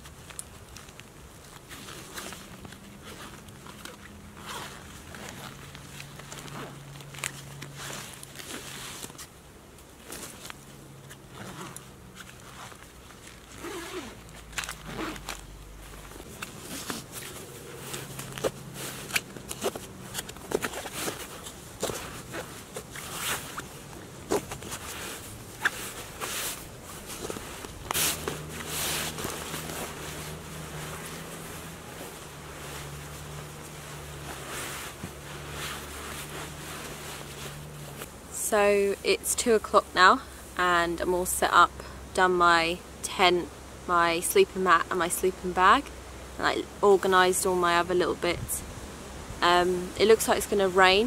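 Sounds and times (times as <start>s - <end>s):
straps and buckles clicking: 0.0s - 38.2s
fabric rustling: 0.0s - 41.2s
zips pulled: 1.7s - 5.6s, 11.0s - 38.1s.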